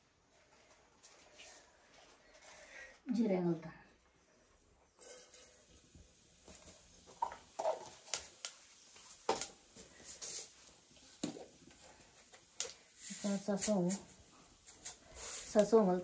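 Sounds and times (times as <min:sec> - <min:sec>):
seeds sizzling in hot oil: 0:04.9 - 0:16.0.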